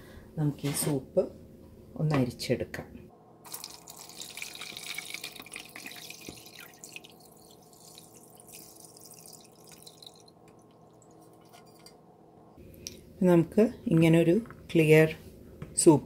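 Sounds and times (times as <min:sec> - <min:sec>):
dripping: 0:03.5 - 0:11.9
liquid pouring through strainer: 0:03.5 - 0:11.9.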